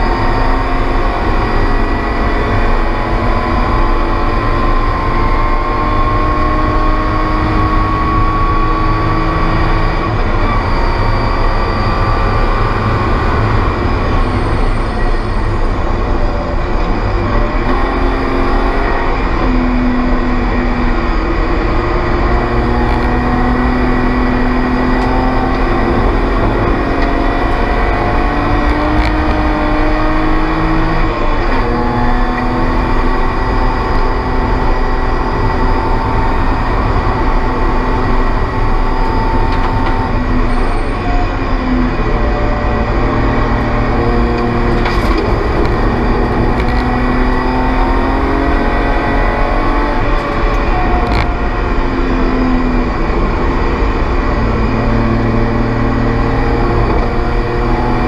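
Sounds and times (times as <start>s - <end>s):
race car engine revving: 0.0s - 58.0s.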